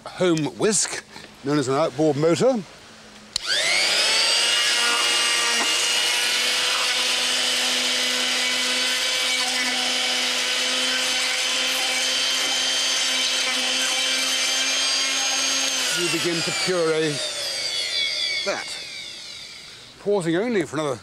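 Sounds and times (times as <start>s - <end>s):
stick blender whining: 3.3s - 20.0s.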